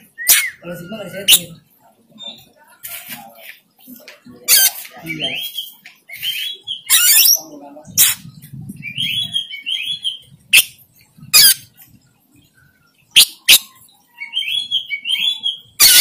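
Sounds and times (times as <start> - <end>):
bird chirping song: 4.5 - 16.0.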